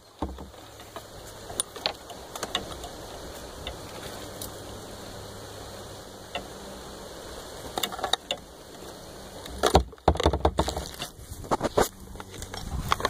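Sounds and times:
knocks and scrapes of phone: 9.7s - 11.9s.

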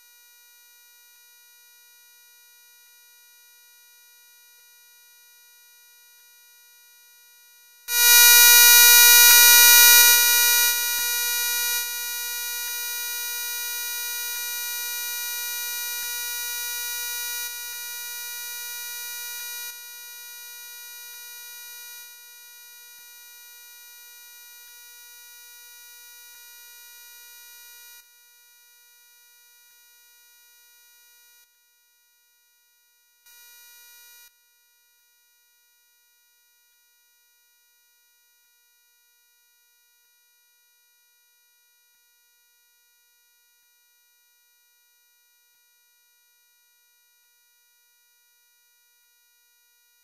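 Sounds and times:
electronic buzzing tone: 7.9s - 12.1s.

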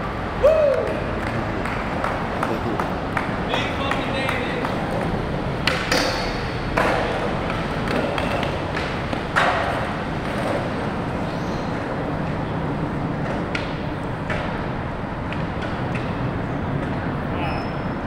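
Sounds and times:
skateboard wheels rumbling on concrete: 0.0s - 18.0s
skateboard landing clacks: 0.9s - 10.7s.

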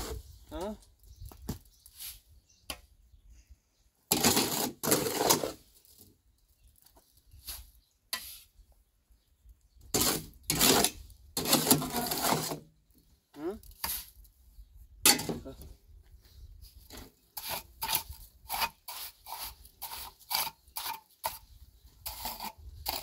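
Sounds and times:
shovel scraping cement in wheelbarrow: 1.9s - 2.3s, 4.1s - 5.8s, 7.4s - 8.5s, 9.9s - 12.7s, 13.8s - 14.2s, 16.9s - 23.0s.

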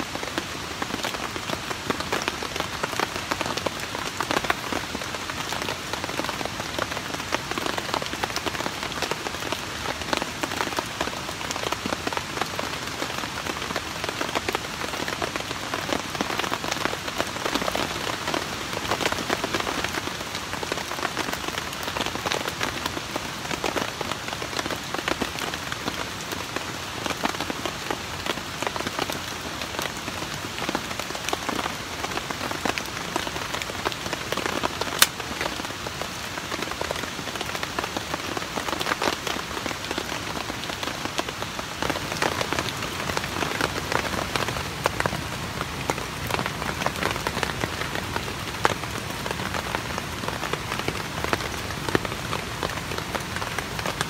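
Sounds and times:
rain pattering: 0.0s - 54.0s
wood snapping: 35.0s - 35.2s.

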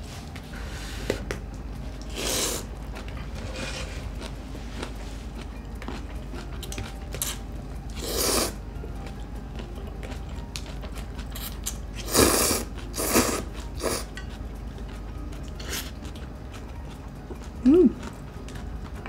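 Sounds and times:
faint chewing: 1.2s - 19.0s
slurping noodles: 8.0s - 8.6s, 12.0s - 14.1s.

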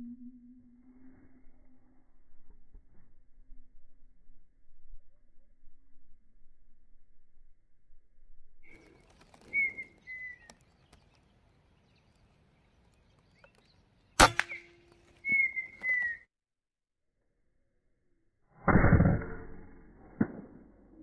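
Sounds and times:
bird whistling high notes: 9.4s - 10.5s, 14.4s - 16.3s
air rifle shot: 14.2s - 15.0s.

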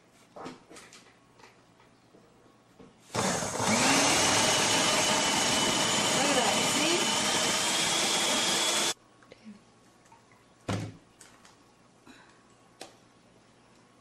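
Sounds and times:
food processor motor whining: 3.1s - 9.0s.

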